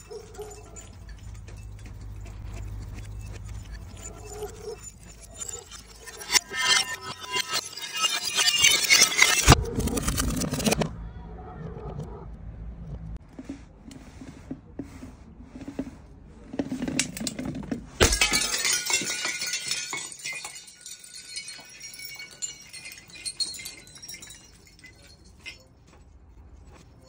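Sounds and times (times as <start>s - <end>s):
glass shards and beads clinking: 0.0s - 10.8s, 16.8s - 27.0s
glass bottle shattering: 3.5s - 9.6s, 17.0s - 25.7s
glass bottle bumping down steps: 16.6s - 25.7s.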